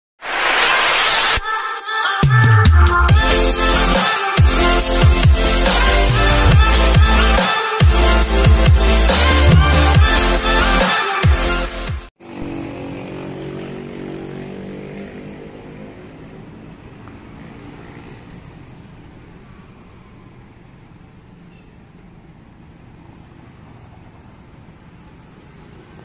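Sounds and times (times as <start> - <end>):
motorcycle engines passing: 12.2 - 20.2, 22.9 - 26.0.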